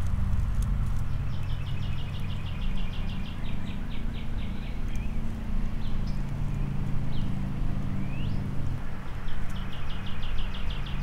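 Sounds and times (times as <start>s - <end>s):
bird trilling and chirping: 7.9s - 8.4s.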